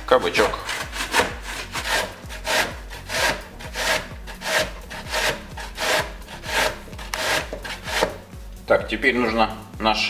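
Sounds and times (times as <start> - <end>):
zucchini grated on box grater: 0.2 - 8.2.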